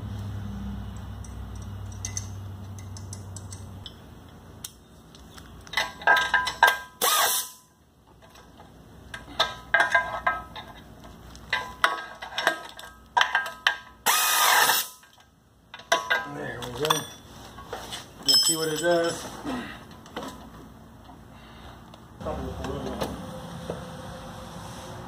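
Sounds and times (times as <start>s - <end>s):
metal tools clinking: 1.0s - 4.0s, 5.2s - 7.4s, 14.6s - 20.5s.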